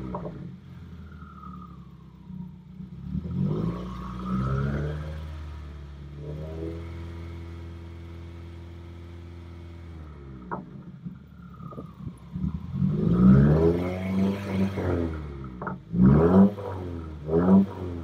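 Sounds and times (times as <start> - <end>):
car engine revving: 0.0 - 18.0.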